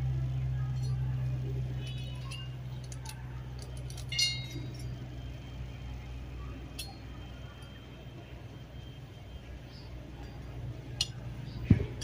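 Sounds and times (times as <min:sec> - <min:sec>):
steady low hum: 0:00.0 - 0:12.0
metal brackets clinking: 0:01.8 - 0:05.0.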